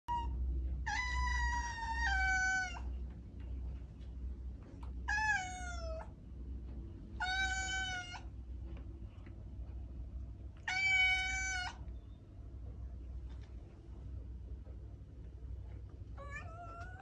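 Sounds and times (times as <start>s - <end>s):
steady low hum: 0.1s - 17.0s
cat meowing: 0.9s - 2.9s, 5.0s - 6.1s, 7.2s - 8.3s, 10.6s - 11.8s, 16.2s - 17.0s.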